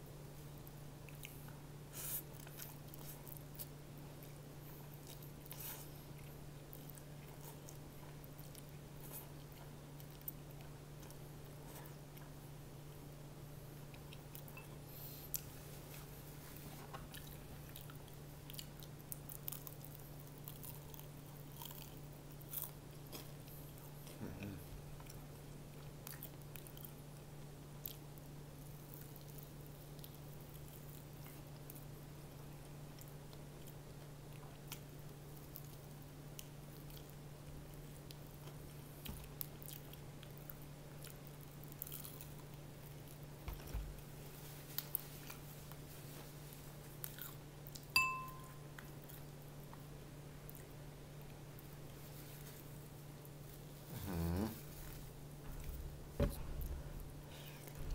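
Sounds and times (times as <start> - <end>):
steady low hum: 0.0 - 57.9
chewing crispy fried chicken: 15.2 - 47.9, 48.7 - 54.9
person chewing crispy chicken: 39.3 - 43.2, 46.9 - 47.9.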